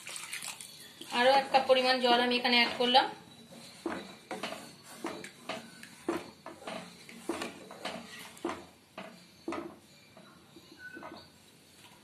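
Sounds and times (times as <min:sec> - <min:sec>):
wooden spatula stirring gravy in pan: 0:02.4 - 0:11.3.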